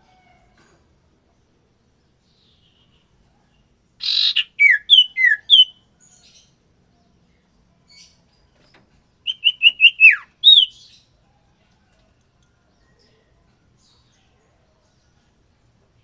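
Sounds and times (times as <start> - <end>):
bird whistling calls: 4.0 - 5.8, 9.2 - 10.9.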